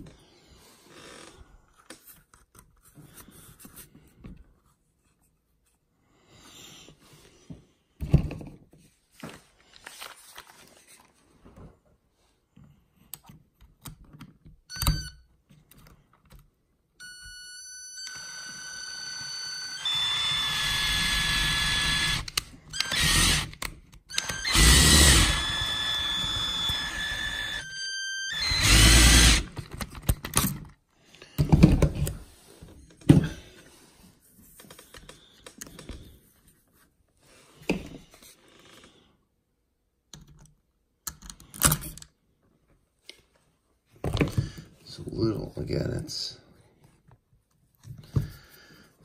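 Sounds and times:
electric screwdriver whining: 0:17.0 - 0:29.6.

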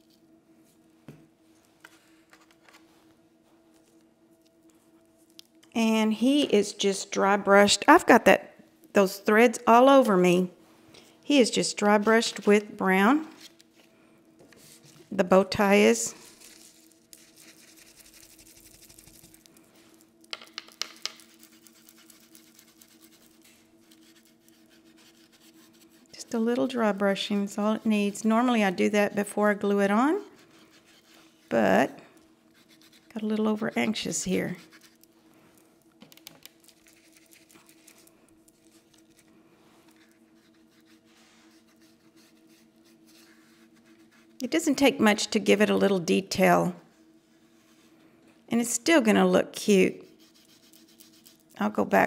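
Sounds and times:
steady low hum: 0:00.0 - 0:52.0
paintbrush scratchy rubbing: 0:16.1 - 0:20.0, 0:21.0 - 0:28.5, 0:29.8 - 0:31.6, 0:32.5 - 0:35.0, 0:36.6 - 0:44.5, 0:50.0 - 0:51.6.

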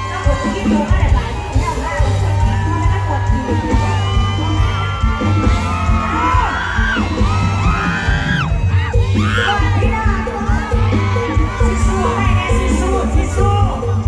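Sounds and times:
band music through sound system: 0:00.0 - 0:14.0
crowd whooping and cheering: 0:00.0 - 0:14.0.

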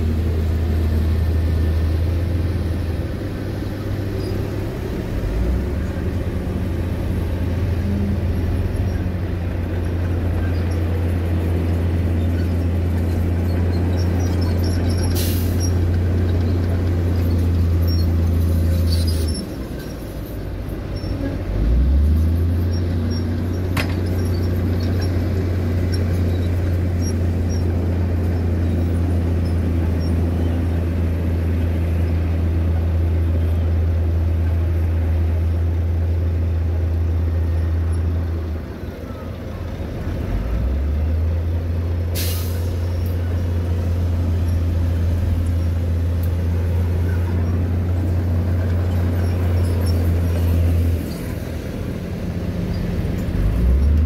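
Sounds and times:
diesel truck engine running: 0:00.0 - 0:54.0
air brake hiss: 0:15.1 - 0:15.6, 0:42.1 - 0:42.9.

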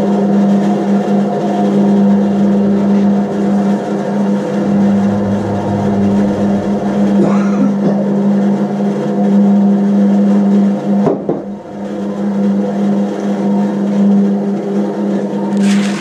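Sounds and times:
bandsaw motor hum: 0:00.0 - 0:16.0.

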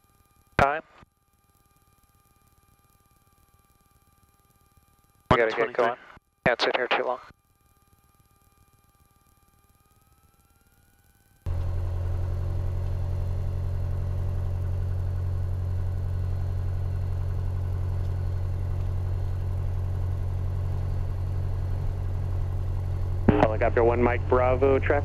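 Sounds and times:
faint steady tones: 0:00.0 - 0:25.0
propeller aircraft engine droning: 0:10.4 - 0:25.0.

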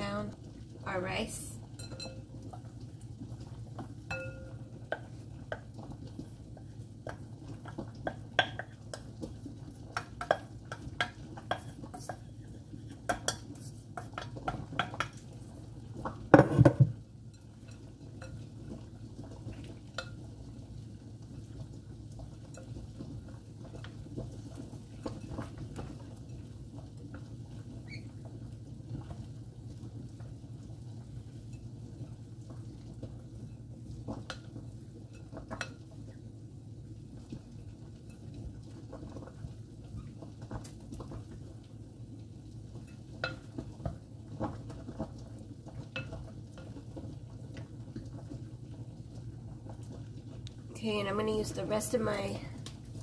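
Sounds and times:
metal clinking against glass bowl: 0:01.8 - 0:02.3, 0:04.1 - 0:04.6.

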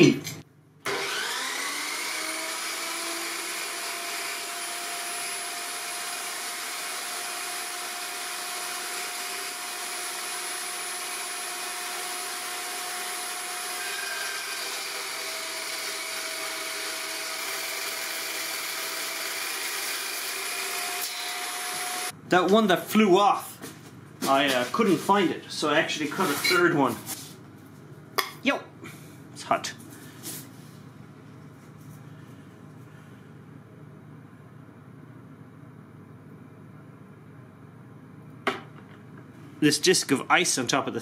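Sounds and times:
chop saw whining: 0:00.9 - 0:22.2
saw cutting metal bar: 0:00.9 - 0:22.2.

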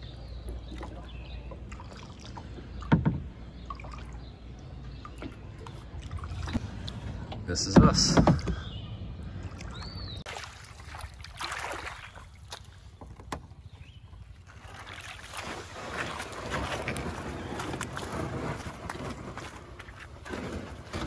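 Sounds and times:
kayak hull scraping and sloshing: 0:09.6 - 0:21.0.

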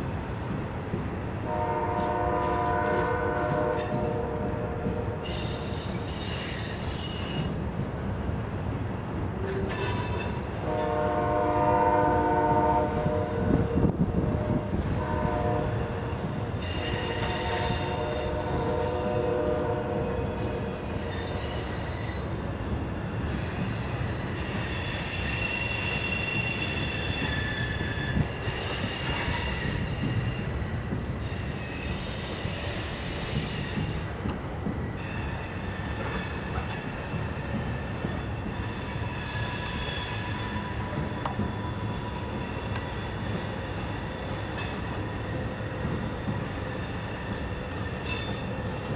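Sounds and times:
freight train rumbling: 0:00.0 - 0:48.9
locomotive horn: 0:01.5 - 0:05.3, 0:10.6 - 0:20.5
train wheels squealing: 0:05.2 - 0:07.6, 0:09.4 - 0:10.5, 0:16.2 - 0:19.2, 0:20.2 - 0:34.3, 0:34.9 - 0:48.9.

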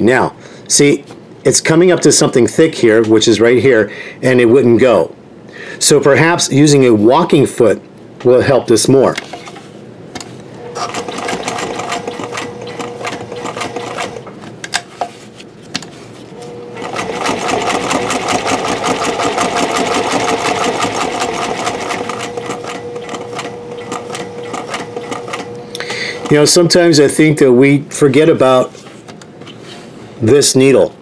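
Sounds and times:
sewing machine stitching leather: 0:10.7 - 0:14.3, 0:16.5 - 0:25.6, 0:26.2 - 0:26.7
sewing machine clicks: 0:10.8 - 0:14.2, 0:16.8 - 0:25.5.

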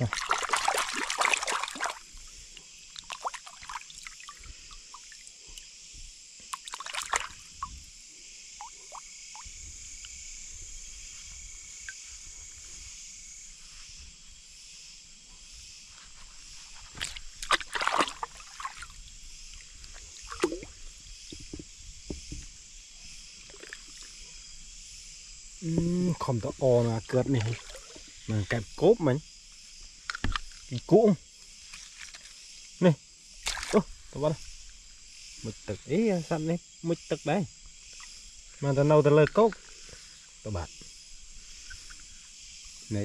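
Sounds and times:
water splashing and sloshing: 0:00.0 - 0:07.9, 0:16.0 - 0:24.4, 0:27.0 - 0:28.3, 0:31.6 - 0:32.4, 0:33.4 - 0:34.9
night insects chorus: 0:00.0 - 0:43.0.

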